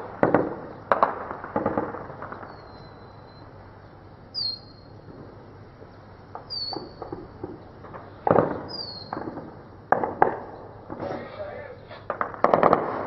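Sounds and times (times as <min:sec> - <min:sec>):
echoing gunshots: 0:00.0 - 0:03.4, 0:06.3 - 0:13.0
bird chirping: 0:02.4 - 0:05.1, 0:06.0 - 0:09.7.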